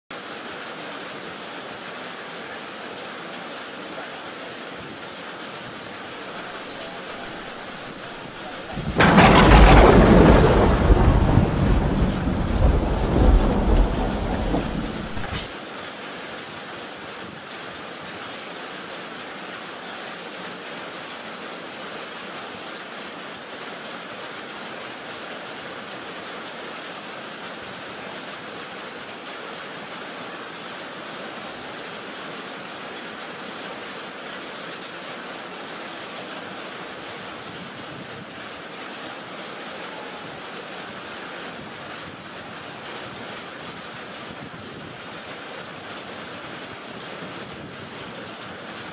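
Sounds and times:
heavy rain falling: 0:00.1 - 0:48.9
thunder rumbling: 0:07.1 - 0:15.5.

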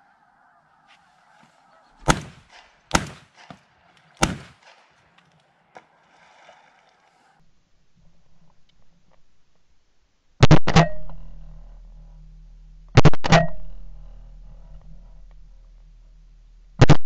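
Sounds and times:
shotgun shots: 0:02.0 - 0:05.6.

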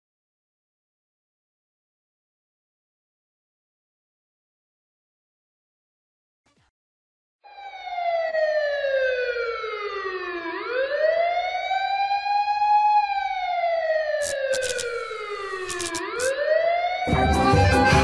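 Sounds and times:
wailing siren: 0:07.4 - 0:18.0
sharp clicks: 0:14.2 - 0:16.3.

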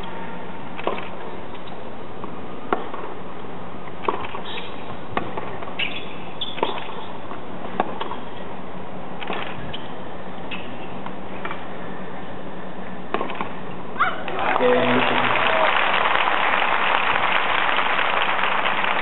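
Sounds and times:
steady low hum: 0:00.0 - 0:15.4
racquets striking tennis ball: 0:00.8 - 0:03.2, 0:03.9 - 0:08.3, 0:13.1 - 0:13.6.

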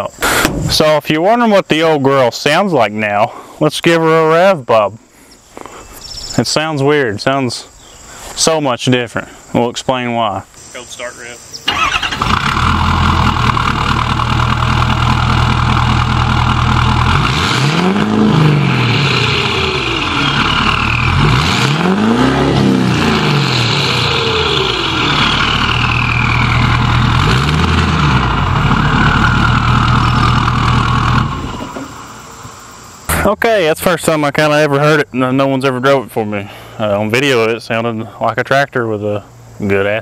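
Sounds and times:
diesel engine idling and revving: 0:11.7 - 0:33.8
turbo whistle: 0:19.3 - 0:21.8, 0:23.8 - 0:27.2, 0:28.7 - 0:30.4.

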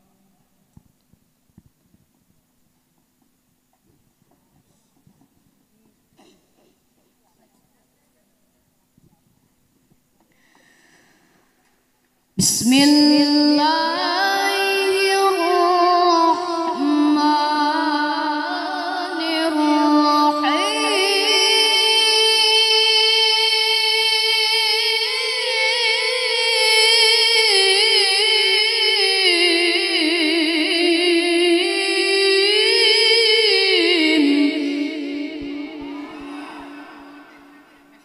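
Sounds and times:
boy reciting through microphone: 0:12.4 - 0:38.0.

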